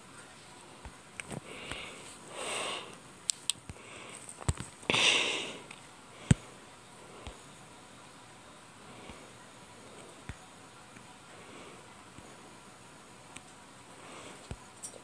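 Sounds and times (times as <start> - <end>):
person sniffing: 4.9 - 5.6.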